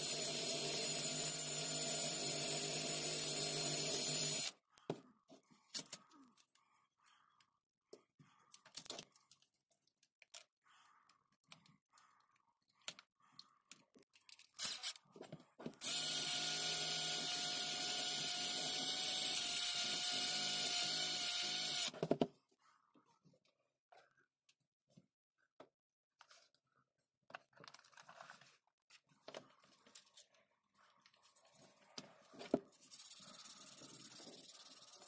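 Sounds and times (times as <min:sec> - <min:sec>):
cordless drill running: 0:00.0 - 0:04.5, 0:15.8 - 0:21.9.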